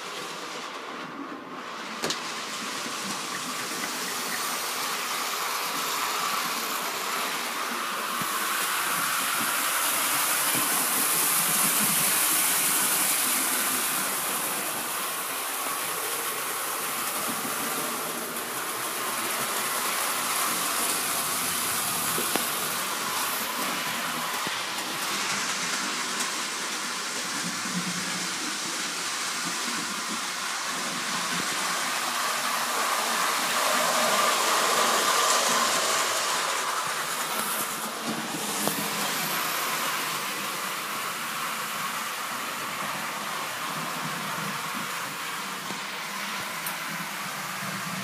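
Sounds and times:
model train running on track: 0:00.0 - 0:48.0.

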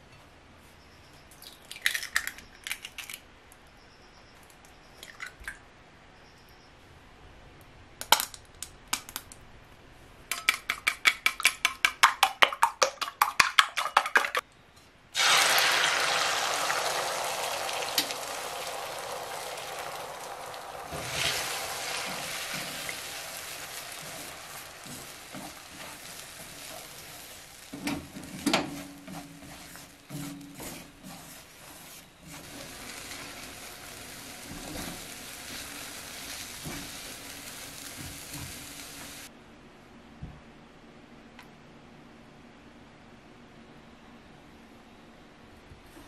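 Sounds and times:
eggs beaten in metal bowl: 0:10.3 - 0:14.4
egg sizzling in wok: 0:15.2 - 0:39.3
chopsticks scraping in wok: 0:20.9 - 0:39.2.

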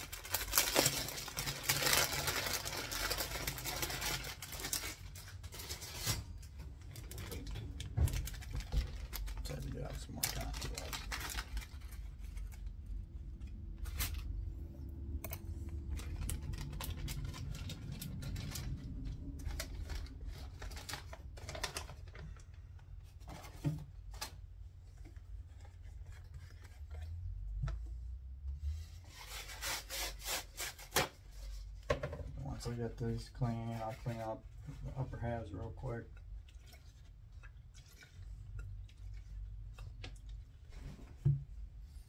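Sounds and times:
scratchy rubbing and scrubbing: 0:28.7 - 0:31.0.

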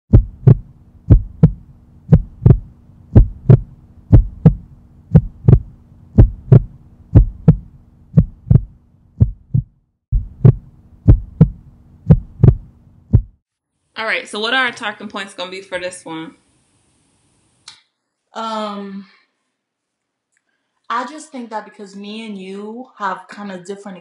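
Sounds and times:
low steady hum: 0:00.1 - 0:09.6
heartbeat thumps: 0:00.1 - 0:13.4.

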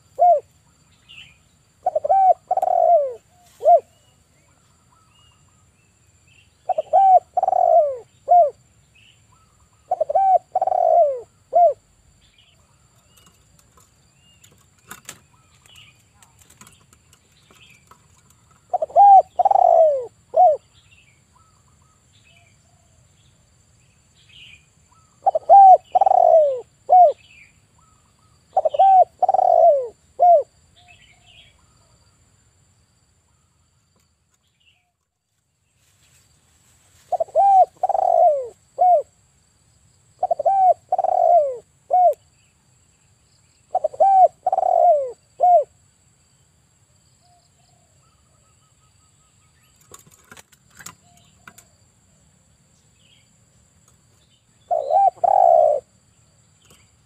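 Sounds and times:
dove cooing: 0:00.0 - 0:00.5, 0:01.8 - 0:04.0, 0:06.6 - 0:08.6, 0:09.4 - 0:11.9, 0:17.5 - 0:20.7, 0:24.9 - 0:30.5, 0:37.1 - 0:39.1, 0:40.2 - 0:42.2, 0:43.7 - 0:45.8, 0:54.7 - 0:55.9.

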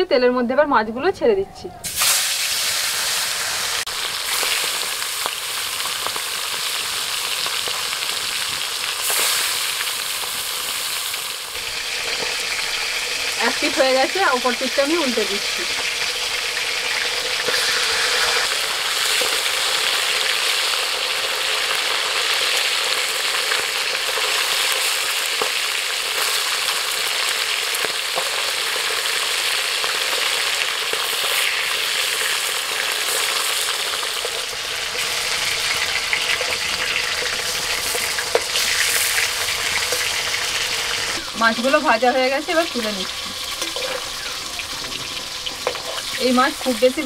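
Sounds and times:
fish sizzling in oil: 0:01.8 - 0:47.0
metal spatula scraping and tapping: 0:43.5 - 0:44.1, 0:45.6 - 0:46.1.

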